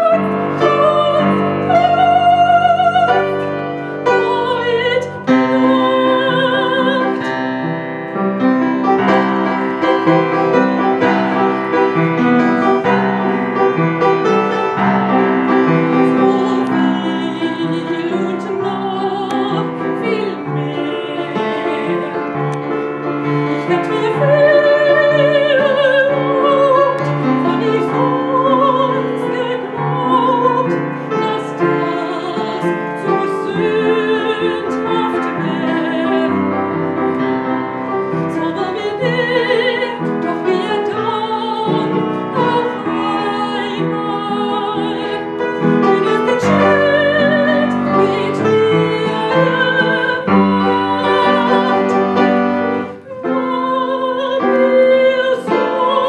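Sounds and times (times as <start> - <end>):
woman singing operatically: 0.0 - 3.4, 4.0 - 7.2, 15.6 - 22.4, 23.5 - 36.5, 38.1 - 52.3, 52.9 - 56.0
piano accompaniment: 0.0 - 56.0.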